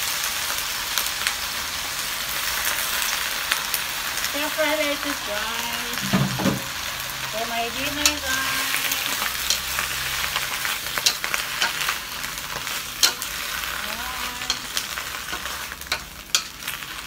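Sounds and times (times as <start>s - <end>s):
lettuce sizzling in hot oil: 0.0s - 17.0s
spatula knocking and scraping wok: 5.9s - 6.8s, 7.8s - 17.0s.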